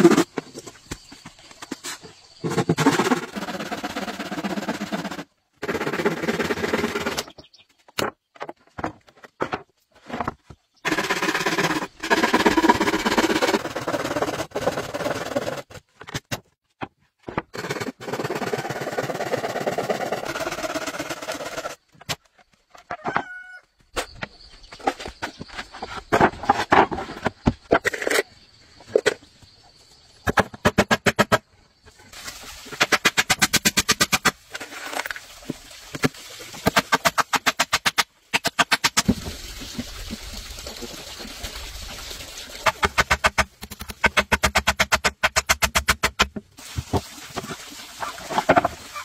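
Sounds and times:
hand saw cutting wood: 0:02.8 - 0:07.2, 0:10.9 - 0:15.8, 0:17.6 - 0:21.8
rooster crowing: 0:23.0 - 0:23.6.

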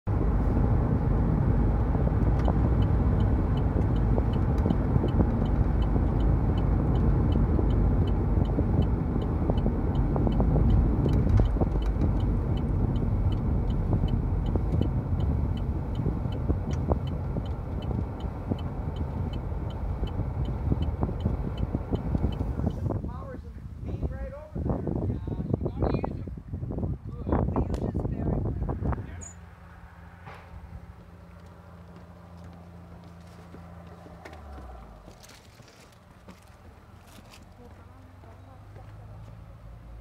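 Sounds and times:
car tyres and engine rumble: 0:00.0 - 0:40.0
light regular ticking: 0:02.2 - 0:22.8.

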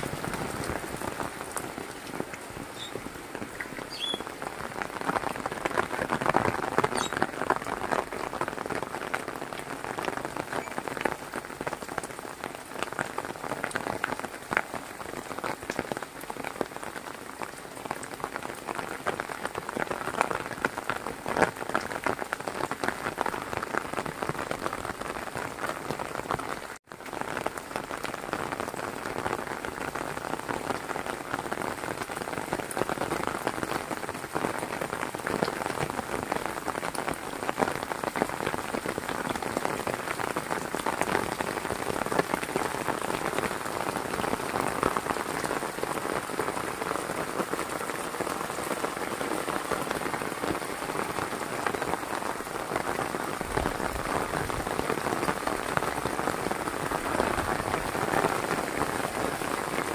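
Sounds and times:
heavy rain falling: 0:00.0 - 0:59.9.

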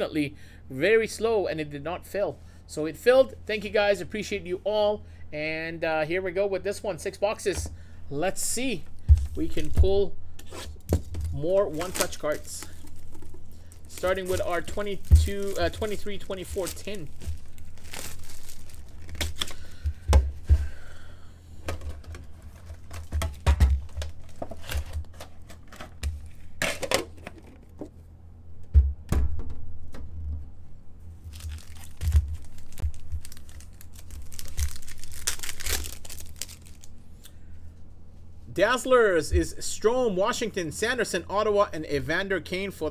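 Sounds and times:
foil pack rustling: 0:08.7 - 0:20.0, 0:22.0 - 0:26.0, 0:31.3 - 0:36.9
plastic wrap crinkling and tearing: 0:10.6 - 0:19.8, 0:31.3 - 0:37.0.

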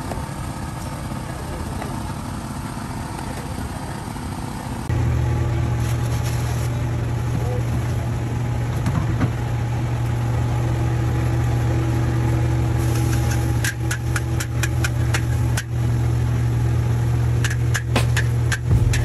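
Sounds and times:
gas burner running: 0:08.6 - 0:16.3.

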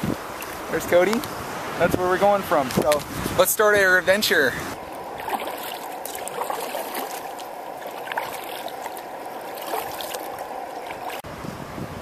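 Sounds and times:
water splashes and drips: 0:00.3 - 0:01.3, 0:04.7 - 0:11.3
kayak paddle dipping in water: 0:04.8 - 0:11.3.

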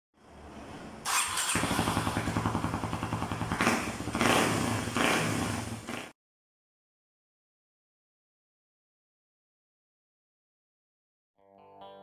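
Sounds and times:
motorcycle engine starting and idling: 0:00.4 - 0:06.1.

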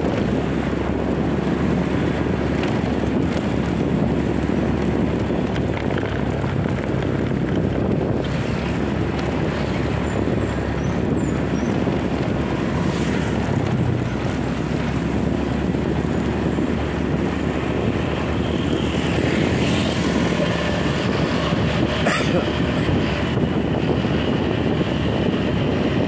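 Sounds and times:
motorbike engine running: 0:00.0 - 0:26.0
wind on microphone: 0:00.0 - 0:26.0.

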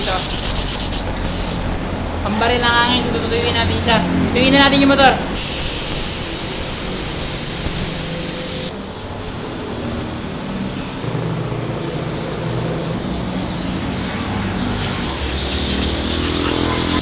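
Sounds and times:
air blow gun hissing: 0:00.0 - 0:01.8, 0:05.3 - 0:08.8, 0:10.9 - 0:17.0
air compressor humming: 0:00.0 - 0:17.0.

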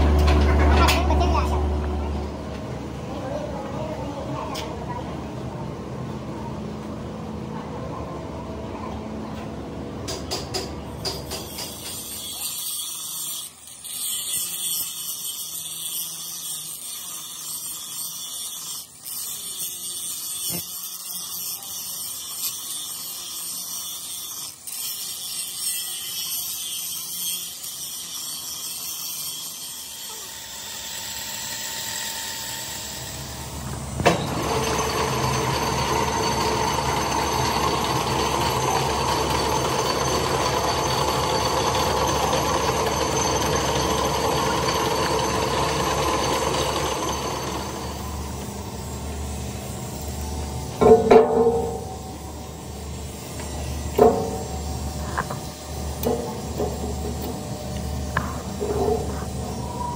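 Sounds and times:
machine noise with low rumble: 0:00.0 - 0:12.0, 0:32.1 - 0:59.9
angle grinder grinding metal: 0:10.9 - 0:59.9.

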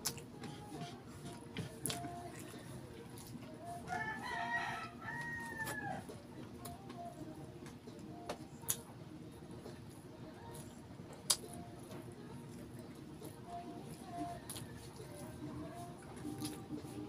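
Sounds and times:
rooster crowing: 0:03.8 - 0:06.2.

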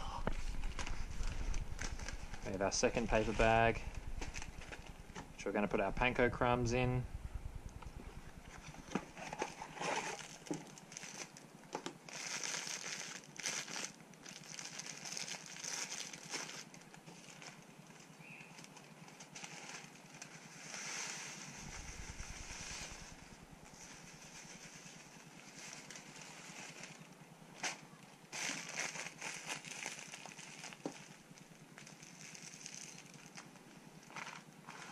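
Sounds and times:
small clicks and crackles: 0:00.2 - 0:34.9
cardboard box and paper rustling: 0:08.9 - 0:11.4.

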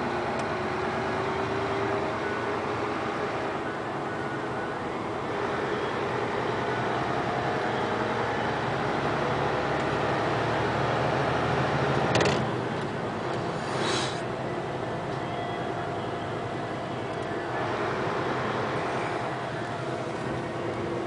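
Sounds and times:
vehicle engine and road hum: 0:00.0 - 0:21.0
brief rushing swell: 0:13.5 - 0:14.3.

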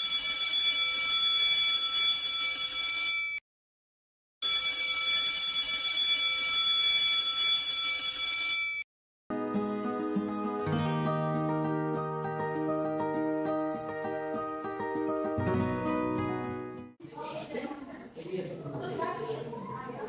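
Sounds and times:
electric school bell ringing: 0:04.4 - 0:08.8.

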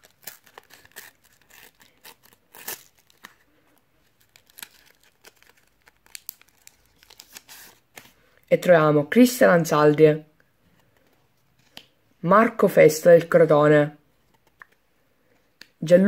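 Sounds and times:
foil wrapper tearing and crinkling: 0:00.0 - 0:08.0.

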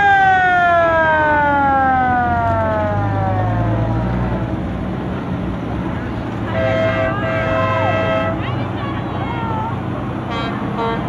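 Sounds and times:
siren wailing: 0:00.0 - 0:04.2
vehicle engine rumbling: 0:00.0 - 0:11.0.

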